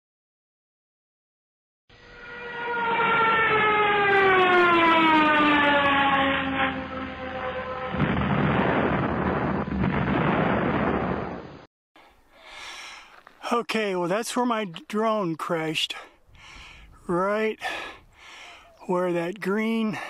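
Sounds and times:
explosion: 0:07.9 - 0:11.7.

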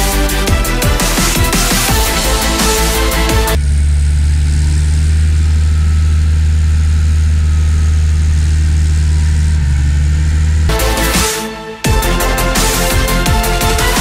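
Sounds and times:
electronic music: 0:00.0 - 0:03.9, 0:10.5 - 0:14.0
tractor diesel engine droning: 0:00.0 - 0:14.0.

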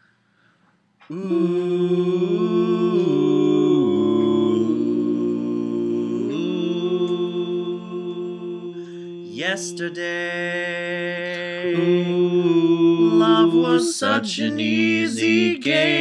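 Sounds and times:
voices singing chords: 0:01.1 - 0:16.0.

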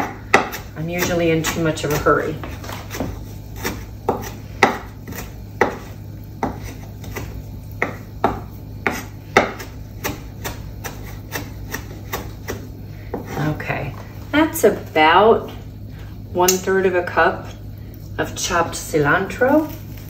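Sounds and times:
knife chopping on cutting board: 0:00.0 - 0:13.4.

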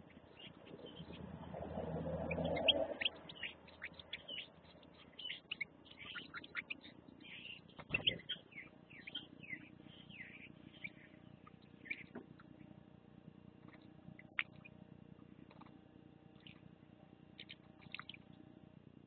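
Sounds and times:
finches twittering: 0:00.0 - 0:12.8.

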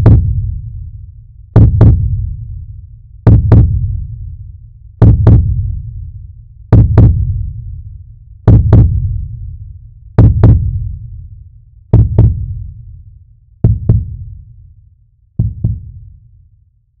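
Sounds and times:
heartbeat thumps: 0:00.0 - 0:00.6, 0:01.6 - 0:02.4, 0:03.2 - 0:04.0, 0:05.0 - 0:05.9, 0:06.7 - 0:07.5, 0:08.5 - 0:09.3, 0:10.2 - 0:11.0, 0:11.9 - 0:12.7, 0:13.6 - 0:14.4, 0:15.4 - 0:16.2.

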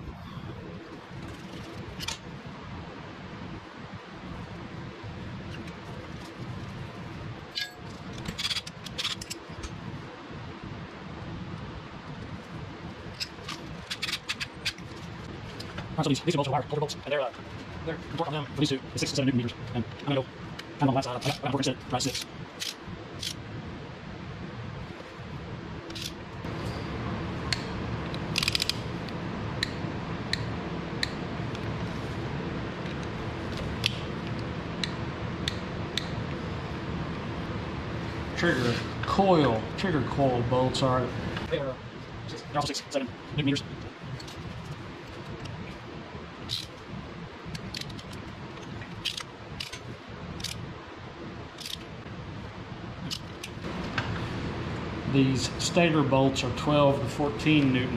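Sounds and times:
socket ratchet clicking: 0:28.2 - 0:28.8, 0:46.5 - 0:46.8, 0:48.9 - 0:49.8.

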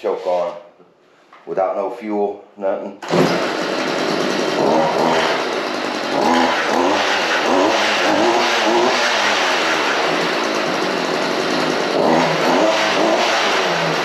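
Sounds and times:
string trimmer engine revving: 0:03.0 - 0:14.0.

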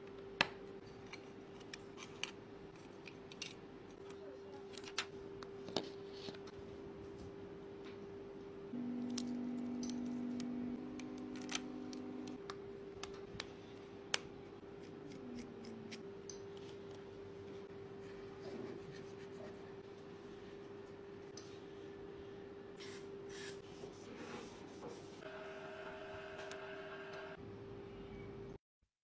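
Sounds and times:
steady low hum: 0:05.2 - 0:25.3
louder second hum: 0:08.7 - 0:12.4.

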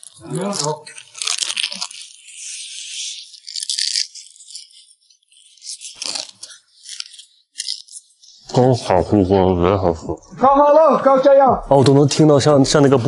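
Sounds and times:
crispy skin crunching when chewed: 0:00.0 - 0:08.7.

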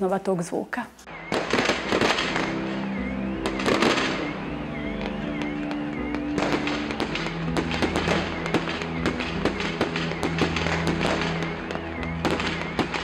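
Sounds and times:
background music with low tones: 0:01.0 - 0:13.0
fireworks popping and crackling: 0:01.3 - 0:13.0.

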